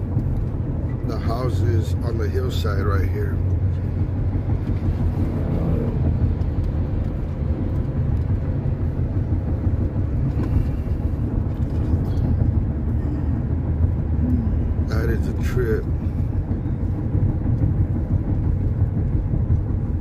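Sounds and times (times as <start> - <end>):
car road and engine rumble: 0.0 - 20.0.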